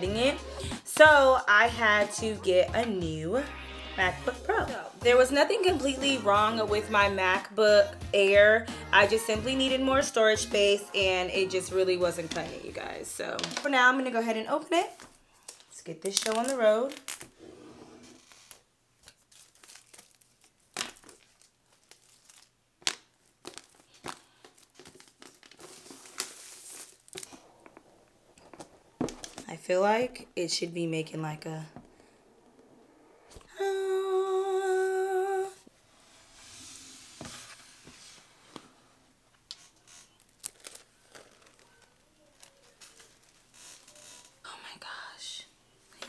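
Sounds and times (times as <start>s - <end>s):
plastic wrapping tearing and crinkling: 14.9s - 17.4s, 18.1s - 29.4s, 39.5s - 44.4s
sharp plastic crackle: 15.0s - 17.4s, 18.2s - 29.5s, 39.5s - 44.4s
woman singing a held note: 33.5s - 35.6s
handling rustles: 40.2s - 44.0s.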